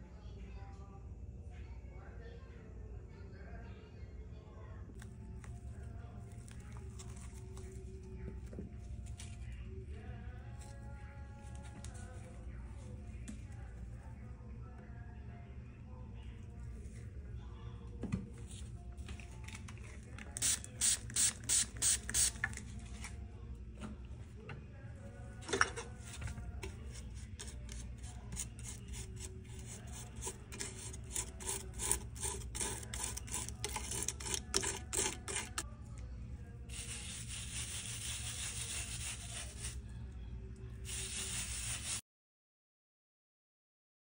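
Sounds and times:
palette knife scraping on glass: 0:26.6 - 0:35.6.

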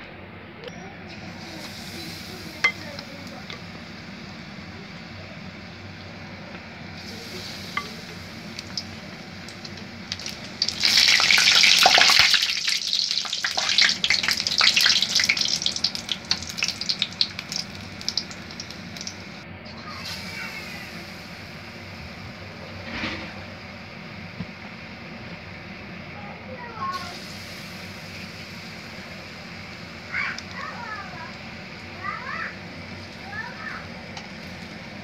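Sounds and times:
fritters sizzling in hot oil: 0:06.9 - 0:19.4.

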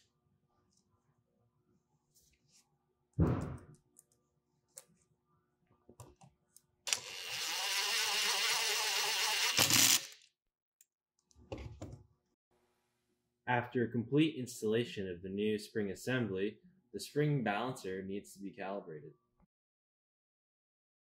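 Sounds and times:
thump: 0:03.2 - 0:03.7
electric screwdriver running: 0:06.9 - 0:10.2.

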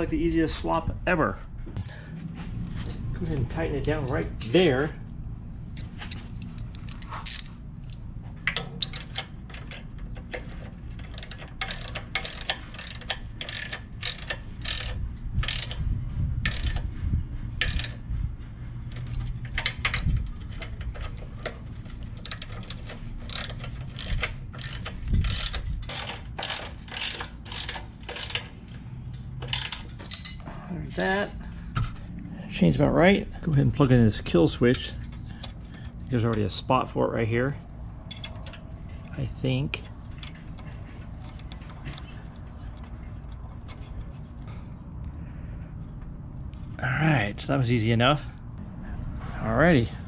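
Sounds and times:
socket ratchet clicking: 0:08.8 - 0:15.8, 0:16.5 - 0:16.8, 0:17.6 - 0:18.0, 0:22.2 - 0:28.5.

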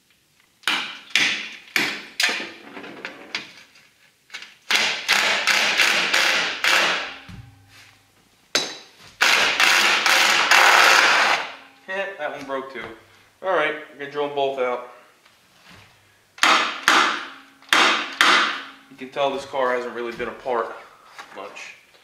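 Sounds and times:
impact driver hammering on bolt: 0:04.7 - 0:07.3, 0:16.4 - 0:18.7.

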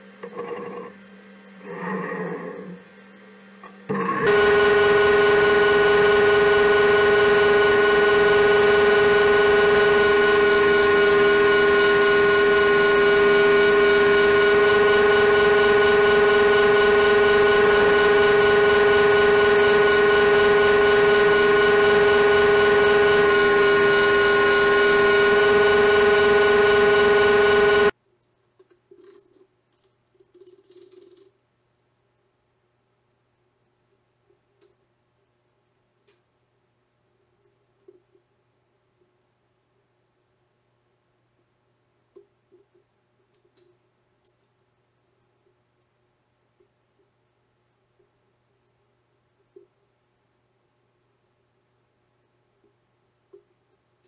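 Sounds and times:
table saw whining: 0:03.7 - 0:27.9.

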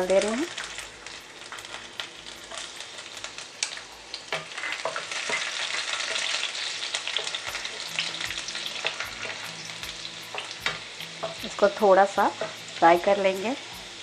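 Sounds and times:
garlic sizzling in hot oil: 0:00.0 - 0:14.0
wooden spatula stirring in pan: 0:00.6 - 0:11.7.

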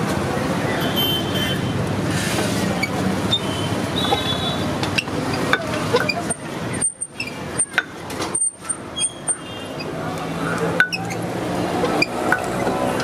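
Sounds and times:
street traffic hum: 0:00.0 - 0:13.0.

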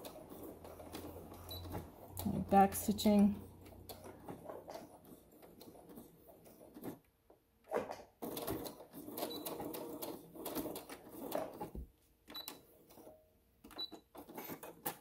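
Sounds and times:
sewing machine stitching: 0:00.0 - 0:11.8.

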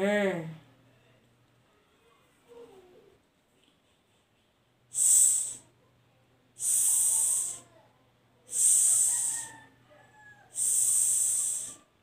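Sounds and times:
woman hissing s sound: 0:04.9 - 0:05.7, 0:06.6 - 0:07.7, 0:08.5 - 0:09.6, 0:10.5 - 0:11.9.

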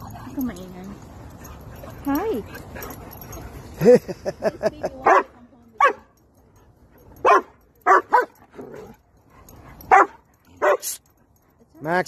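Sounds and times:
dog barking: 0:05.0 - 0:06.1, 0:07.2 - 0:08.4, 0:09.8 - 0:11.0.

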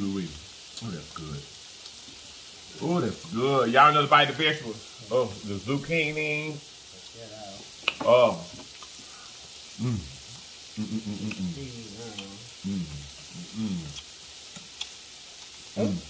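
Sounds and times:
meat sizzling on grill plate: 0:00.0 - 0:16.0
people humming with enjoyment: 0:09.8 - 0:10.1, 0:10.8 - 0:11.6, 0:12.6 - 0:13.9.

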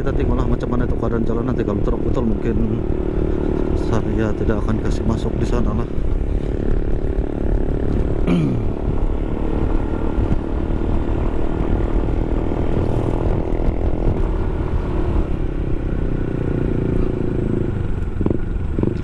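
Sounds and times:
wind rumble on microphone: 0:00.0 - 0:19.0
scooter engine running: 0:00.1 - 0:19.0.

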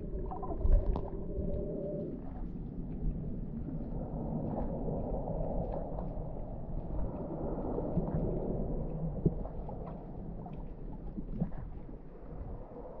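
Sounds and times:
faint clicks and crackles: 0:00.0 - 0:13.0
underwater rumble of moving water: 0:00.0 - 0:13.0.

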